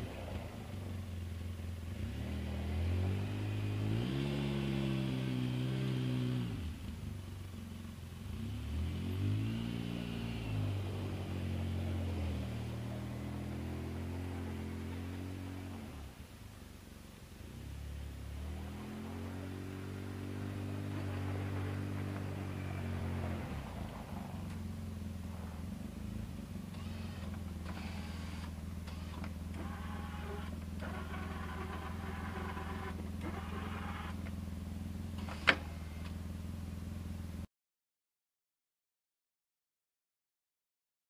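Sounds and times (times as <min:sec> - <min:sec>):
utility vehicle engine idling: 0:00.0 - 0:02.9, 0:06.7 - 0:08.8, 0:09.8 - 0:37.5
high whirring: 0:26.7 - 0:34.3.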